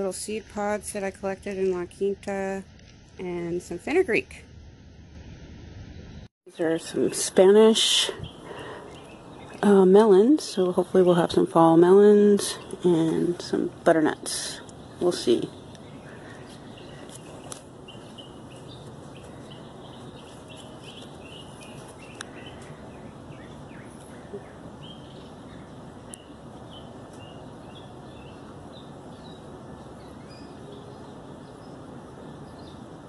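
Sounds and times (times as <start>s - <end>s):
steady background hiss: 0.0s - 33.0s
songbirds chirping: 6.0s - 33.0s.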